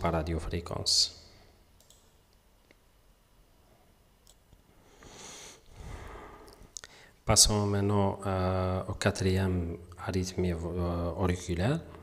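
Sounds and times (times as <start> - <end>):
soft clicks: 1.8 - 2.8, 4.2 - 4.6
breathy hiss: 4.8 - 7.2.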